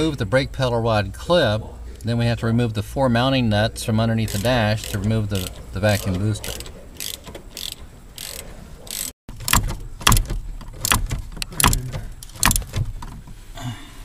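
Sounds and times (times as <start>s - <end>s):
ratchet wrench clicking: 4.3s - 12.8s.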